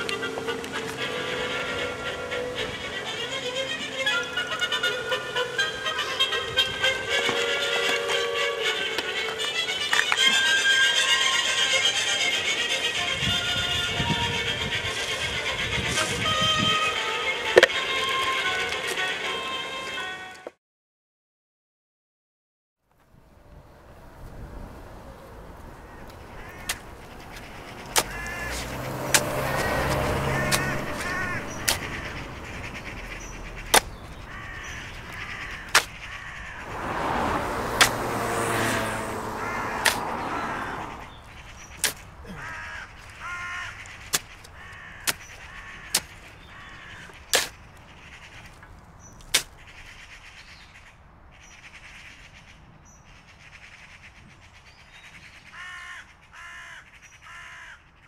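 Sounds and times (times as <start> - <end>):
ravens cawing: 25.6 - 47.3, 55.5 - 57.9.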